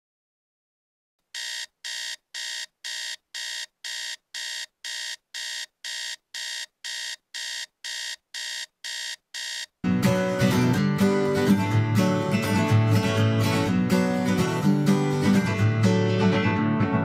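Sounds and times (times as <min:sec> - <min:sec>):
phone alarm beeping: 0:01.4 - 0:09.7.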